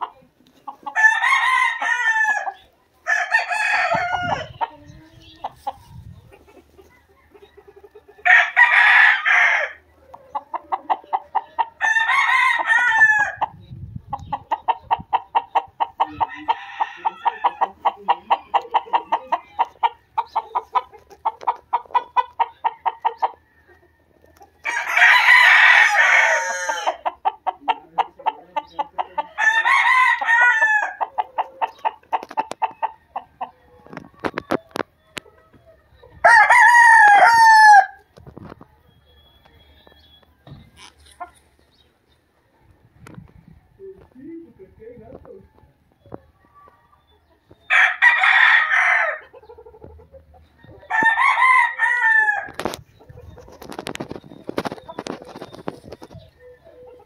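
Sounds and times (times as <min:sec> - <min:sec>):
rooster clucking: 0:00.0 - 0:41.6, 0:46.0 - 0:57.0
rooster crowing: 0:00.9 - 0:04.6, 0:07.0 - 0:09.8, 0:11.8 - 0:13.5, 0:16.0 - 0:17.7, 0:22.7 - 0:27.1, 0:29.4 - 0:31.0, 0:36.2 - 0:38.0, 0:47.7 - 0:49.3, 0:50.7 - 0:52.6.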